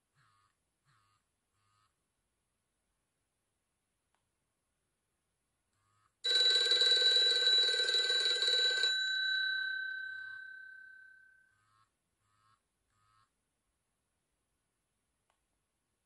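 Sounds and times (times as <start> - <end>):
phone alert ringing: 6.3 - 11.4.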